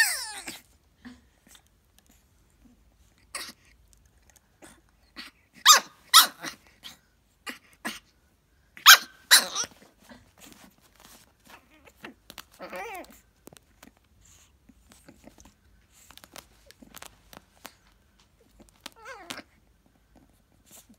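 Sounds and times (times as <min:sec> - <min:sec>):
puppy whining: 0:00.0 - 0:01.7, 0:02.6 - 0:03.8, 0:04.6 - 0:08.1, 0:08.8 - 0:20.9
puppy yipping barks: 0:05.6 - 0:06.6, 0:08.8 - 0:09.7
paws and bottle scuffing on carpet: 0:09.6 - 0:19.5.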